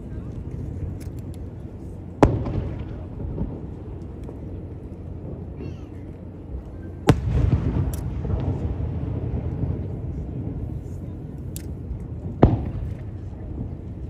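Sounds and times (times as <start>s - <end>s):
firework rumble: 0.0s - 14.0s
firework bang: 2.2s - 4.5s, 7.0s - 10.8s, 11.7s - 14.0s.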